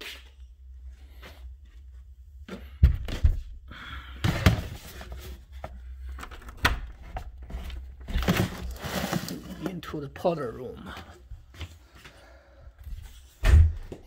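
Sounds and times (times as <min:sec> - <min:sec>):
scraping and rustling: 0:07.0 - 0:09.8.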